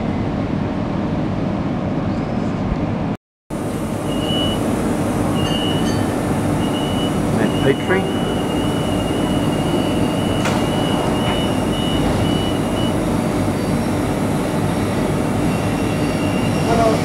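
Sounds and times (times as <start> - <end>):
train equipment humming: 3.6 - 17.0
high steady tone: 5.3 - 13.0.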